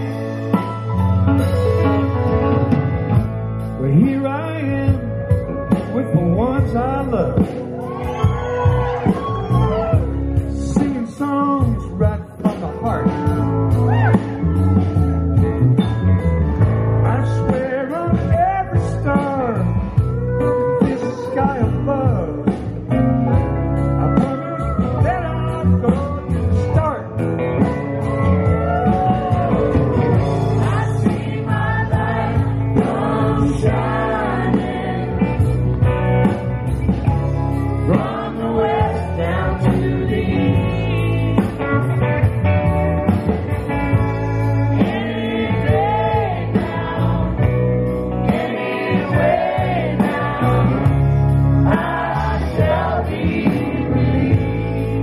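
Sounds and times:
several voices singing: 0:30.1 - 0:35.7, 0:37.7 - 0:41.6, 0:44.8 - 0:55.0.

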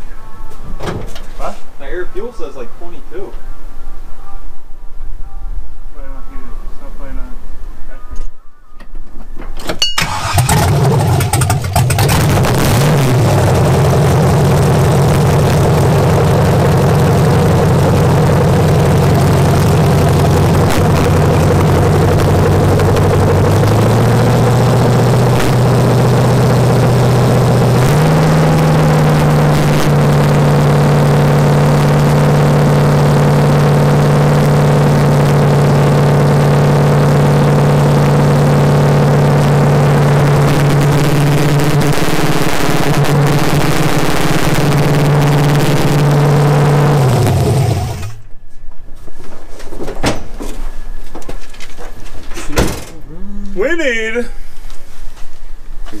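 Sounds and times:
car engine starting and running: 0:10.0 - 0:48.4.

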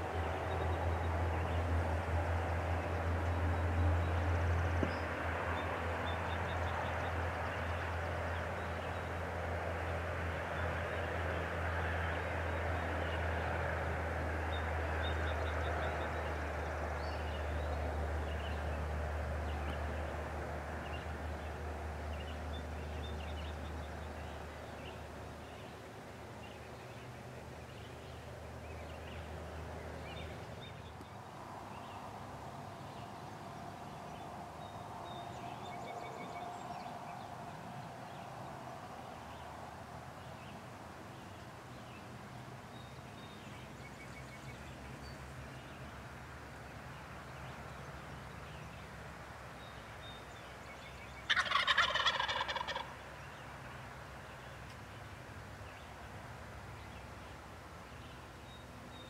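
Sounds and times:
songbird chirps: 0:14.5 - 0:59.0.

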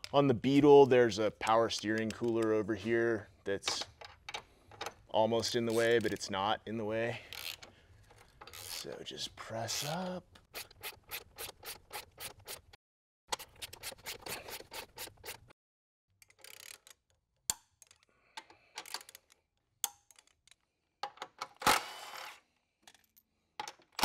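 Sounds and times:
ratchet clicking: 0:07.3 - 0:07.7, 0:08.4 - 0:08.9, 0:16.2 - 0:17.0.

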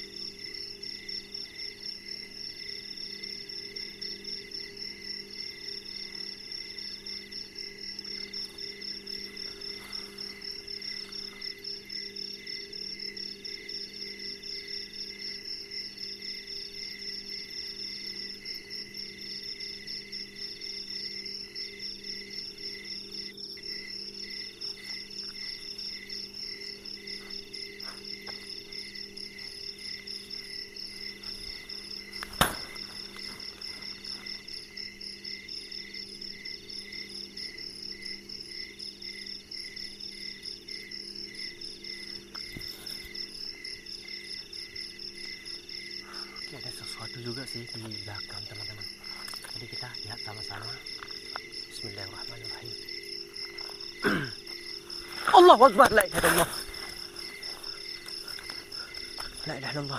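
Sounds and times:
crickets and insects trilling: 0:00.0 - 0:59.9
sharp knock: 0:32.3 - 0:32.8.

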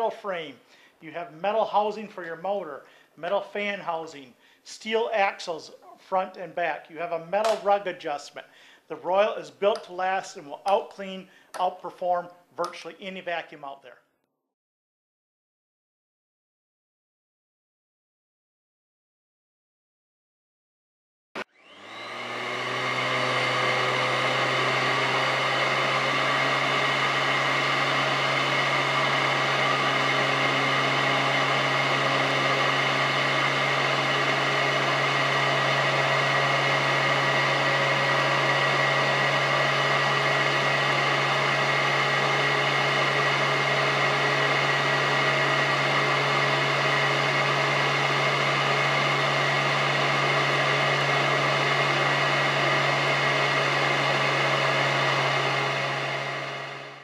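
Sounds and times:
vacuum cleaner motor running: 0:21.4 - 0:57.0.

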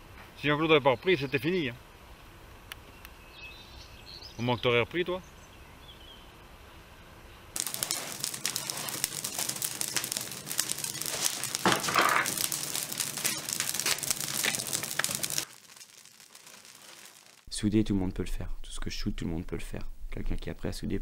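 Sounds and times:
wood fire crackling: 0:07.6 - 0:17.6.

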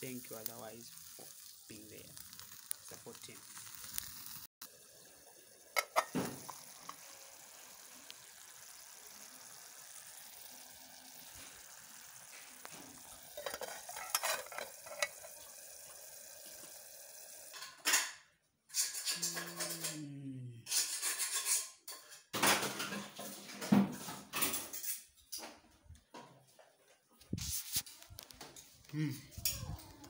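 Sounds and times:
meat sizzling on grill: 0:00.0 - 0:17.7.

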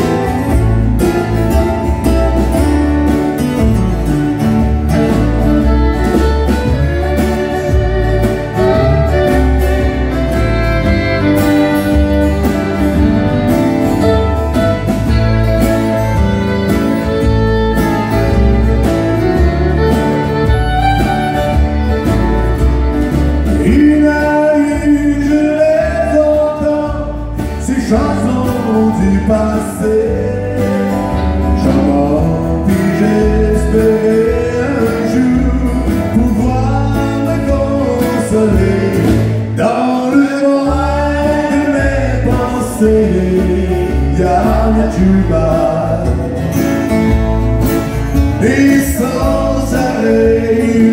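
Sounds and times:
man singing: 0:00.0 - 0:01.9, 0:23.5 - 0:46.6, 0:48.0 - 0:50.9
fiddle: 0:00.0 - 0:25.0
acoustic guitars: 0:00.0 - 0:50.9.

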